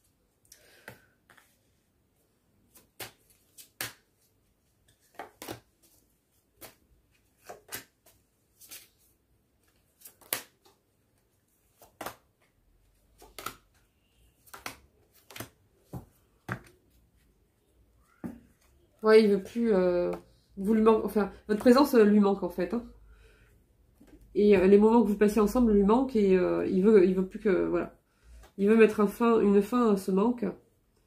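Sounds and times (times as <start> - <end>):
cards shuffled and snapped: 2.7 - 4.1, 6.6 - 9.0, 10.0 - 10.8.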